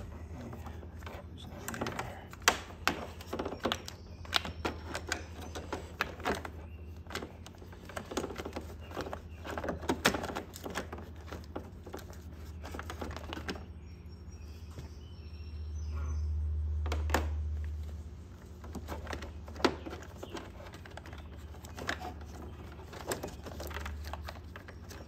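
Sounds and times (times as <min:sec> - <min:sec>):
steady low hum: 0:00.0 - 0:25.0
plastic clicks and rattles: 0:00.4 - 0:13.6, 0:18.4 - 0:25.0.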